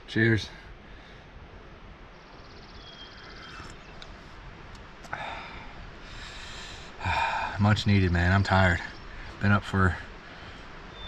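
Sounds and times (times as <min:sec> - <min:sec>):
faint high bird trill: 0:02.1 - 0:04.3
breathy exhale: 0:05.1 - 0:07.6.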